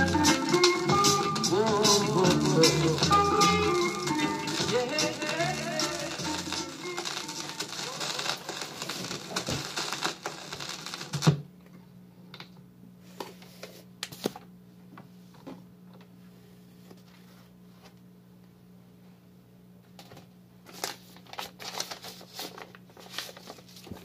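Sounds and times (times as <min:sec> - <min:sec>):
record stopping with a thump: 0:00.0 - 0:11.5
vinyl record clicks and rustling: 0:00.0 - 0:12.6, 0:19.9 - 0:24.0.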